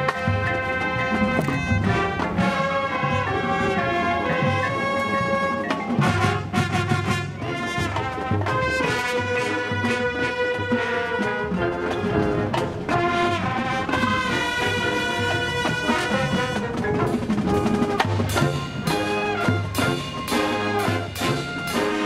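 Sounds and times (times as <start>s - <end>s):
brass sustained chords: 0.0s - 22.0s
marching band percussion: 0.0s - 22.0s.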